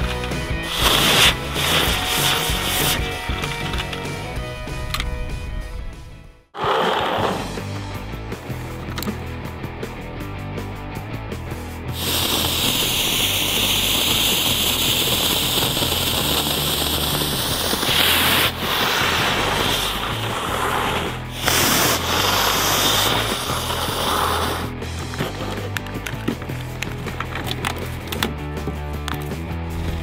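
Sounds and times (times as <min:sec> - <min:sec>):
background music: 0:00.0 - 0:30.0
firework fountains hissing: 0:00.5 - 0:03.3, 0:11.9 - 0:25.7.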